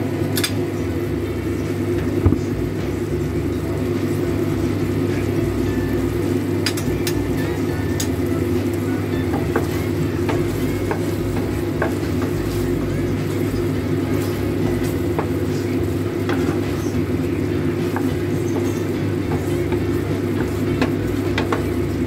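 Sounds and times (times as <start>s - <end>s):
loud low hum: 0.0s - 22.0s
sauce bubbling in a pan: 2.8s - 22.0s
wooden spoon knocking pan: 9.2s - 12.6s, 14.8s - 15.5s, 17.8s - 21.8s.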